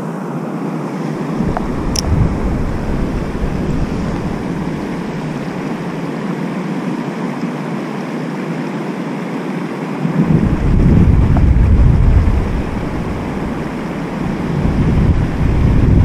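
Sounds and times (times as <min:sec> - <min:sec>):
wind gust buffeting microphone: 0:01.0 - 0:07.2, 0:10.0 - 0:16.0
wind on microphone: 0:01.0 - 0:07.4, 0:10.0 - 0:16.0.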